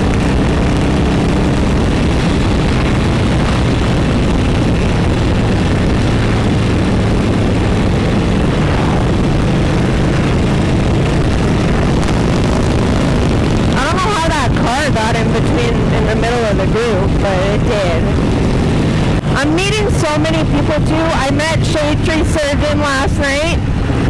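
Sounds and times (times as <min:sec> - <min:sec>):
motorcycle engine running: 0:00.0 - 0:24.0
wind rushing: 0:00.0 - 0:24.0.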